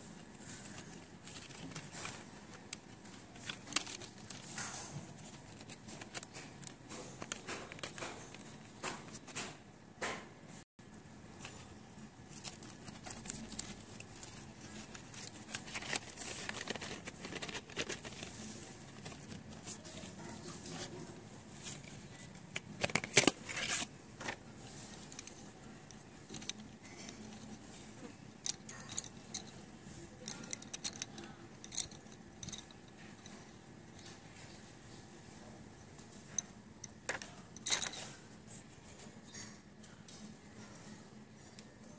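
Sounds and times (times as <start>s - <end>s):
pencils clicking together: 12.3s - 18.3s, 30.2s - 32.7s
cardboard box rustling: 12.3s - 20.2s.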